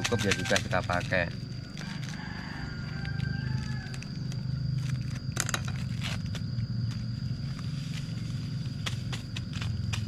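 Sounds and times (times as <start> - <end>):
low hum: 0.6 - 10.0.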